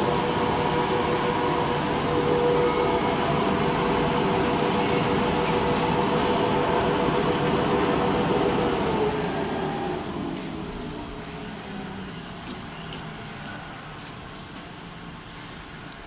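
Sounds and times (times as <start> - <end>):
industrial sewing machine running: 0.0 - 10.4.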